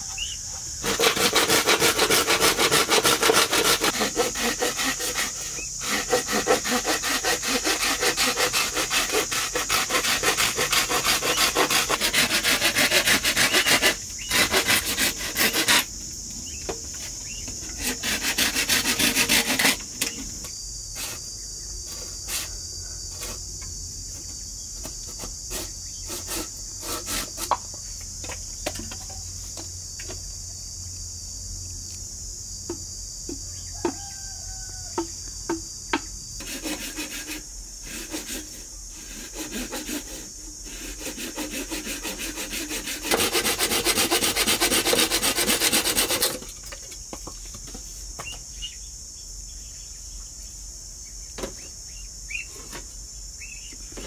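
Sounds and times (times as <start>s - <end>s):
insects calling: 0.0s - 54.0s
hand tool rubbing bamboo: 0.7s - 16.0s, 16.6s - 20.3s, 20.9s - 23.6s, 24.8s - 27.7s, 36.4s - 48.2s.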